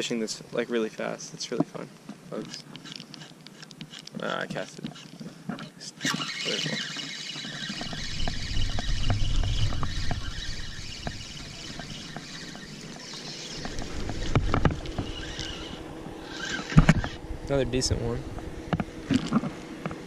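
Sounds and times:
fishing reel cranking: 0:02.4 - 0:17.2
low rumbling: 0:07.8 - 0:19.8.

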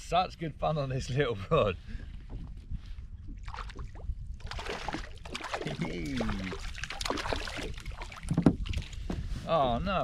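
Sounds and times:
fish splashing in water: 0:03.4 - 0:08.3.

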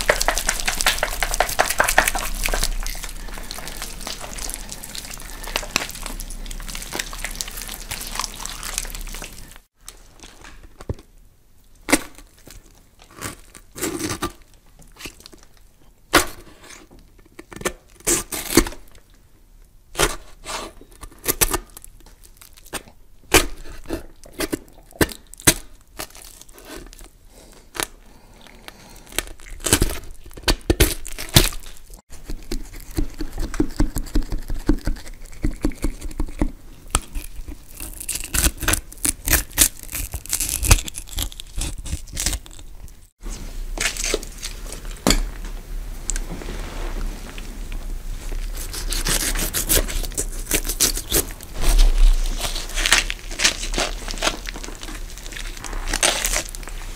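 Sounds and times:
crackling: 0:00.0 - 0:11.0, 0:35.6 - 0:56.9
crunching and tearing noises: 0:00.0 - 0:11.1, 0:11.8 - 0:19.0, 0:20.0 - 0:45.2, 0:47.7 - 0:56.9.

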